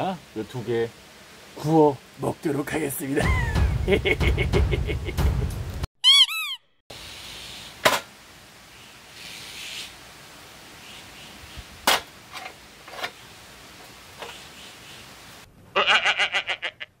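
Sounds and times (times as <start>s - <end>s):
cartoon rising and falling chirps: 6.0s - 6.8s.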